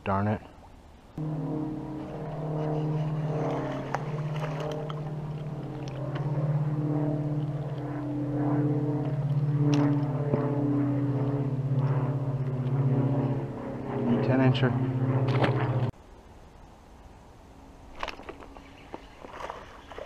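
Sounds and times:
engine drone: 1.1s - 16.0s.

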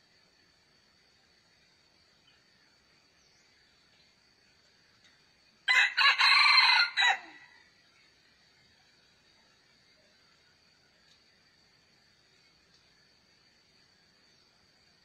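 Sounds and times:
rooster crowing: 5.7s - 7.7s.

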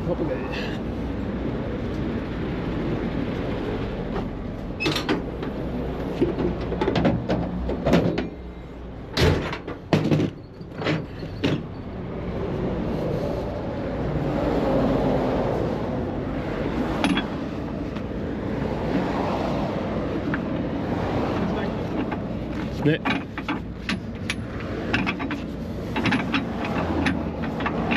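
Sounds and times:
heavy vehicle engine running: 0.0s - 27.9s
sharp clunks and knocks: 4.2s - 8.4s, 9.1s - 11.8s, 21.3s - 27.9s.

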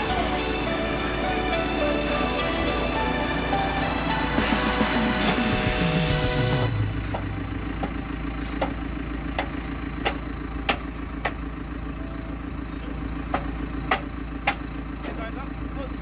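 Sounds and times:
diesel engine idling: 0.0s - 16.0s
sharp knocks: 13.3s - 15.2s.

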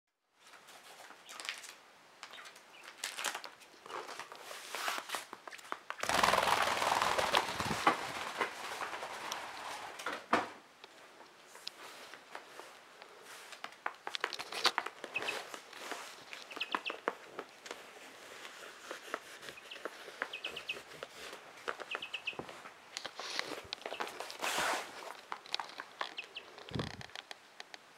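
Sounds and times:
chicks moving on wooden floor: 0.4s - 27.8s
chicks peeping: 15.1s - 15.5s, 16.4s - 17.2s, 19.5s - 21.0s, 21.7s - 22.5s, 26.0s - 26.8s.

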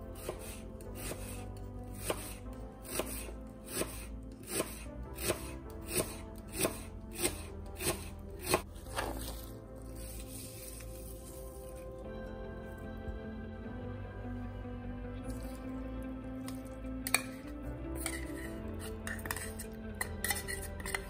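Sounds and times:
background music: 0.0s - 21.0s
knife slicing onion on board: 0.2s - 1.4s, 2.0s - 9.3s.

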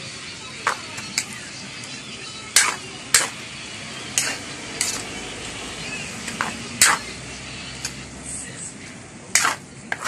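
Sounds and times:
metal utensil scraping a wok: 0.6s - 10.0s
pan sizzling: 2.5s - 3.4s, 4.1s - 8.0s.

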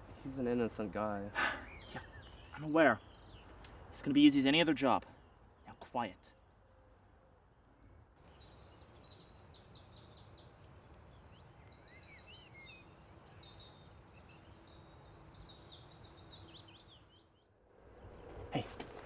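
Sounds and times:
high bird chirps and trills: 1.6s - 6.4s, 8.2s - 18.3s.

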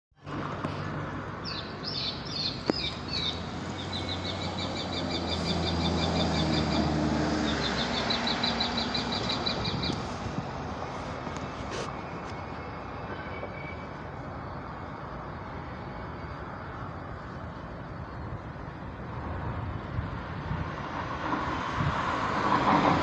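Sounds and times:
bird chirping trills: 1.4s - 10.0s.

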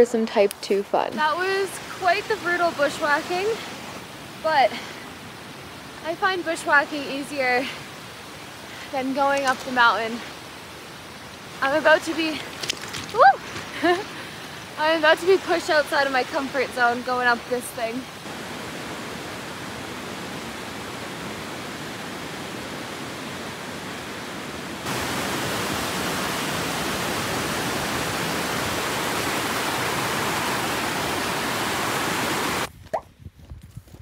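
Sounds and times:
creek rushing over rocks: 0.0s - 32.7s
waterfall cascading onto rocks: 1.2s - 22.8s, 24.8s - 32.7s
footsteps crunching on scree: 12.4s - 13.8s.

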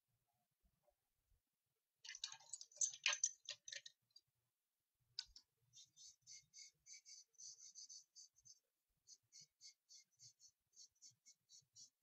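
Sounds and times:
click: 5.2s - 5.4s
charcoal scratching on paper: 5.8s - 12.0s.

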